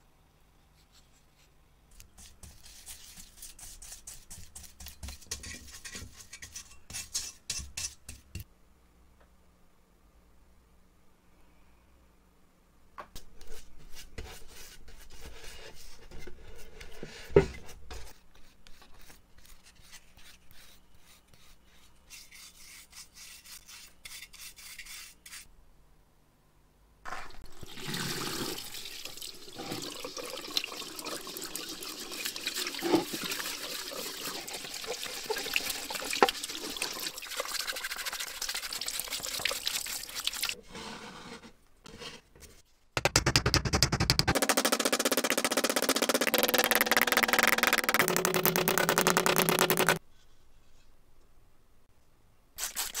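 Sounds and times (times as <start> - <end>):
brushing on metal helmet: 13.4 - 25.5
sharp knocks: 43.0 - 50.0.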